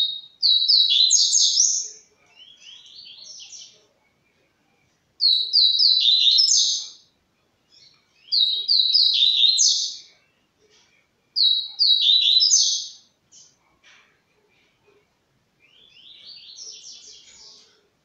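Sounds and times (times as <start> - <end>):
songbird singing: 0.0 - 18.0.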